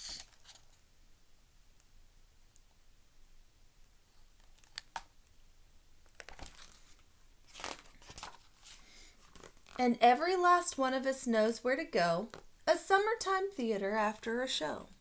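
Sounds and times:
paper pages turning: 0:00.0 - 0:00.8, 0:06.0 - 0:09.8.

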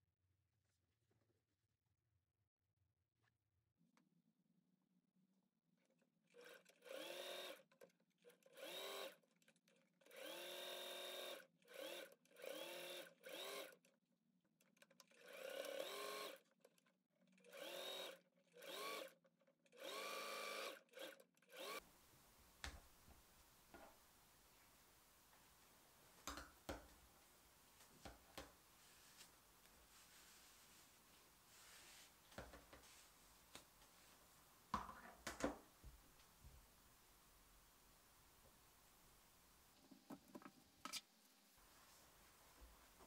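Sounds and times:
sewing machine stitching: 0:06.3 - 0:13.9, 0:14.7 - 0:16.5, 0:17.2 - 0:21.8.

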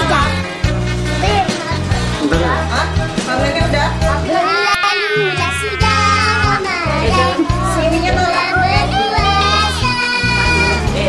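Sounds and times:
high wavering melody: 0:04.3 - 0:09.2
low bass notes: 0:05.4 - 0:11.0.

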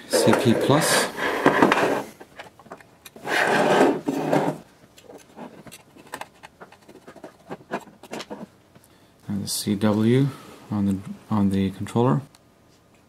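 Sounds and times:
wire scraping across desk: 0:00.1 - 0:02.2, 0:03.2 - 0:08.5.

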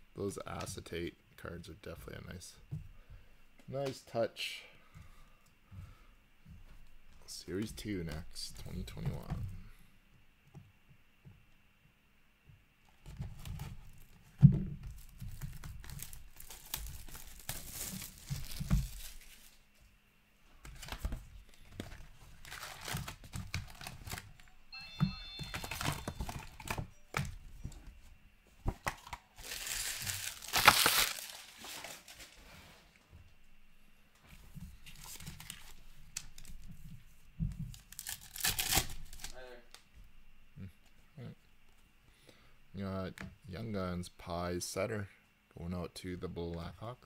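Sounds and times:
foil packs crinkling: 0:14.9 - 0:19.6, 0:20.7 - 0:24.4, 0:28.9 - 0:32.4, 0:34.9 - 0:36.6, 0:37.7 - 0:39.4
plastic shrink-wrap tearing: 0:15.0 - 0:19.6, 0:22.3 - 0:24.4, 0:29.0 - 0:32.4, 0:37.7 - 0:39.4.

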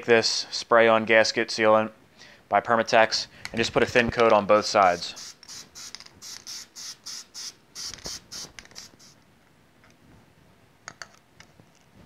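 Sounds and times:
aerosol spray hissing: 0:04.5 - 0:09.2.

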